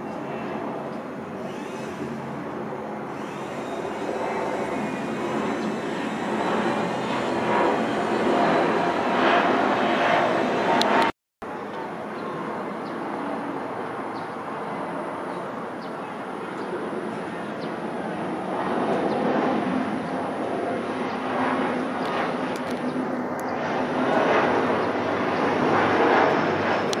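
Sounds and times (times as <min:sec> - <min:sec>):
jet airliner engines rumbling: 0:00.0 - 0:27.0.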